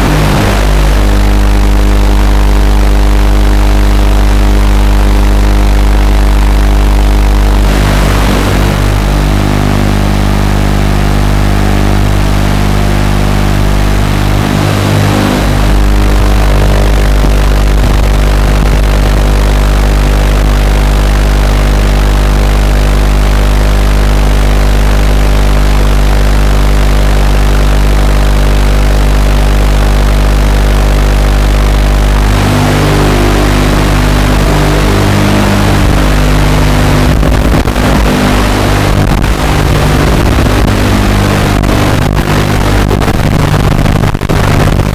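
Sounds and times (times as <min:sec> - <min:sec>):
drone motors idling: 0:00.0 - 0:20.6, 0:30.4 - 0:44.9
electrical interference buzz: 0:00.0 - 0:44.9.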